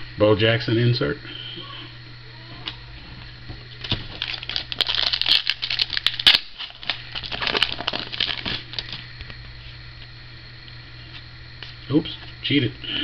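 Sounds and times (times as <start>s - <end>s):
foil wrapper tearing and crinkling: 3.8s - 9.1s.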